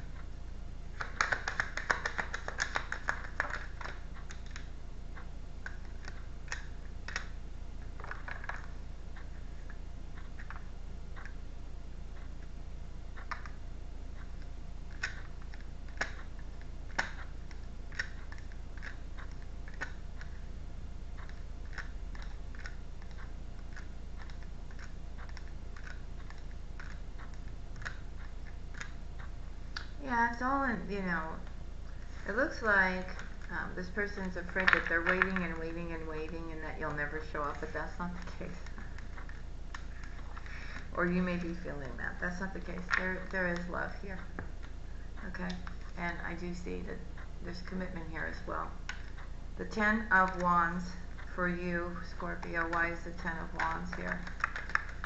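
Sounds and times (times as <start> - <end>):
low steady hum: 0.0 - 55.0
cards being shuffled: 1.0 - 4.7, 53.5 - 55.0.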